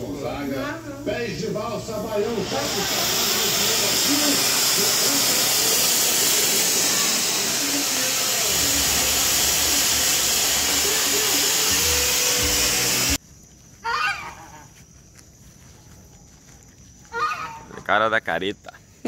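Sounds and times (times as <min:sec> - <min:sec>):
firework fountain hissing: 0:00.0 - 0:13.2
brief high-pitched cry: 0:13.8 - 0:14.6.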